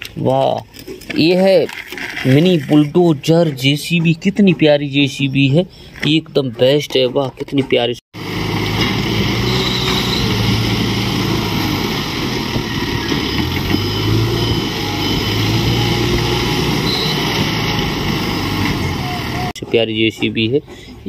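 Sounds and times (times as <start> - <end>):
engine humming: 8.2 - 21.0.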